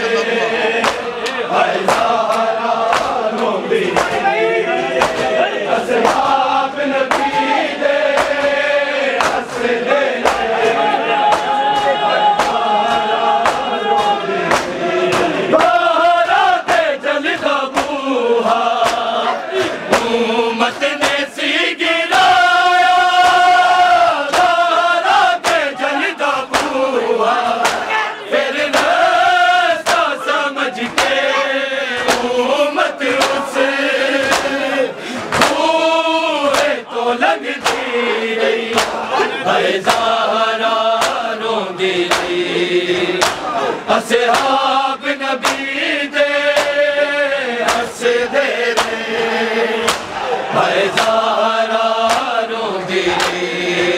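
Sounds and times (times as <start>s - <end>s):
men chanting a lament in unison: 0.0s - 53.9s
hands slapping chests: 0.8s - 4.3s, 5.0s - 15.9s, 17.7s - 18.0s, 18.8s - 21.3s, 23.2s - 26.8s, 27.6s - 28.0s, 28.6s - 31.3s, 31.9s - 32.4s, 33.0s - 35.8s, 36.4s - 36.8s, 37.4s - 38.0s, 38.7s - 40.2s, 40.9s - 41.4s, 42.0s - 43.6s, 44.3s - 44.7s, 45.4s - 45.8s, 46.5s - 46.8s, 47.6s - 49.1s, 49.8s - 51.3s, 52.0s - 52.4s, 53.0s - 53.9s.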